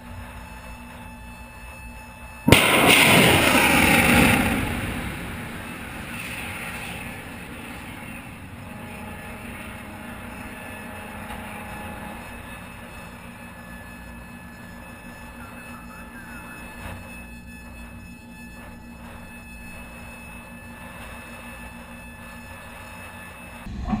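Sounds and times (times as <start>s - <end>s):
wind: 0.0s - 15.5s, 19.0s - 24.0s
ship noise: 0.0s - 24.0s
rocket motor roar: 2.4s - 24.0s
missile launch blast: 2.5s - 10.4s.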